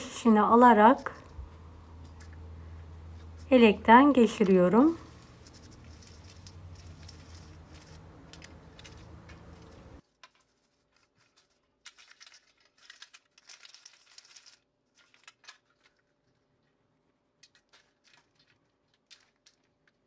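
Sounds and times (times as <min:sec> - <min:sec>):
low steady hum: 0:00.0 - 0:10.0
crumbs rubbed through metal sieve: 0:04.2 - 0:15.9.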